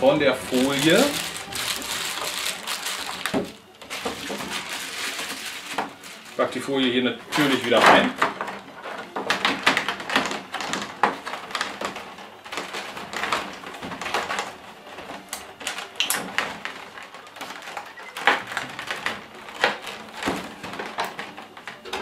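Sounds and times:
plastic blister tray crackling: 0.2s - 22.0s
sharp plastic snaps: 15.3s - 16.3s.

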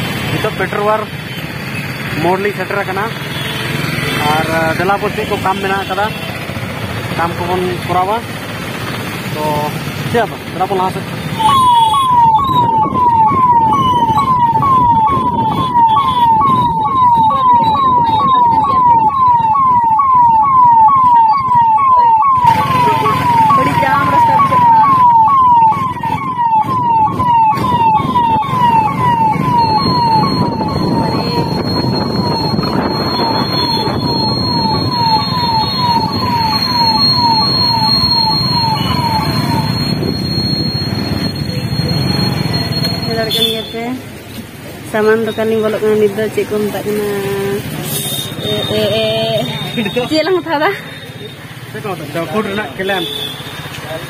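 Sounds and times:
road and traffic noise: 0.0s - 54.0s
electronic siren-like chirp: 11.4s - 43.4s.

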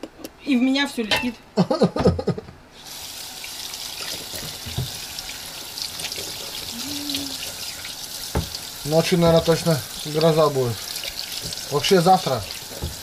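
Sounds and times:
tap running into sink: 4.0s - 5.2s, 8.2s - 13.0s.

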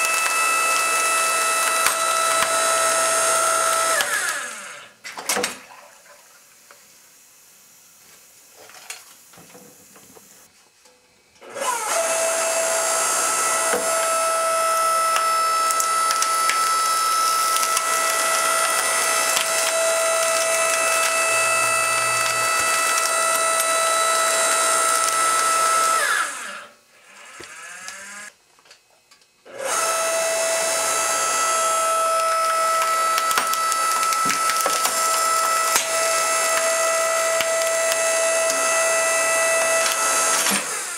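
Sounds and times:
wood cracking and splintering: 0.0s - 4.6s, 11.9s - 26.3s, 29.8s - 40.9s
log splitter whining: 0.0s - 5.6s, 11.4s - 28.4s, 29.5s - 40.9s.

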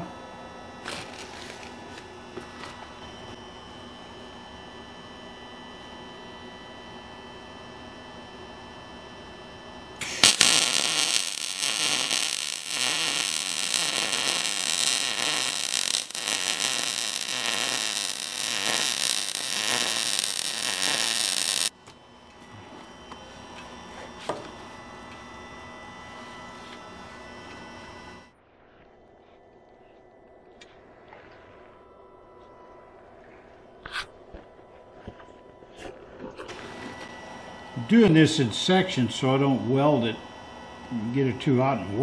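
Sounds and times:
welder machine hum: 0.0s - 28.4s, 30.5s - 42.0s
welding arc sizzling and crackling: 10.0s - 21.8s, 36.5s - 40.2s.

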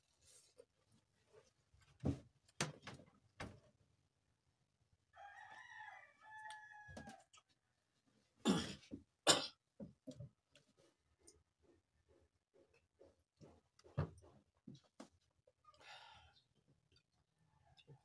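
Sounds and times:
rooster crowing: 5.1s - 7.3s.

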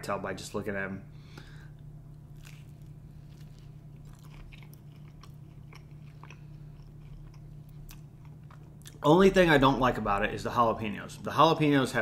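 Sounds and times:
steady low hum: 0.0s - 12.0s
person chewing pizza: 1.8s - 9.1s.

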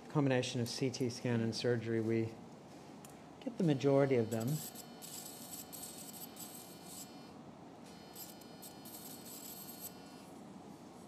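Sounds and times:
high-pitched electrosurgical tone: 3.8s - 10.3s.

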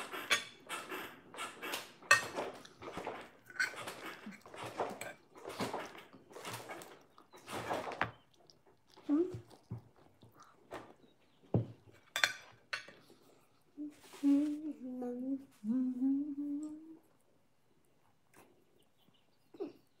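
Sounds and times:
person humming: 13.8s - 17.1s.

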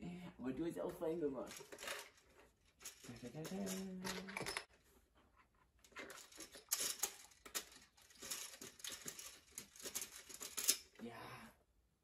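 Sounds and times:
plastic game discs clicking: 5.8s - 10.8s.

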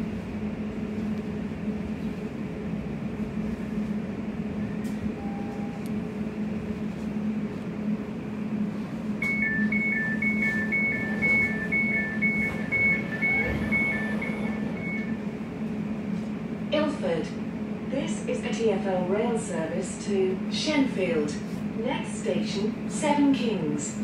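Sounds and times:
train equipment humming: 0.0s - 24.0s
two-tone door warning beeps: 5.2s - 5.8s, 9.2s - 15.2s.

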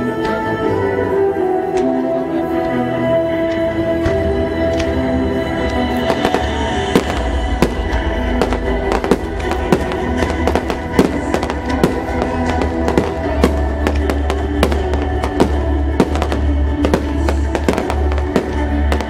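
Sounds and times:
music with heavy bass: 4.7s - 19.0s
fireworks bursting with sharp bangs: 6.0s - 19.0s.

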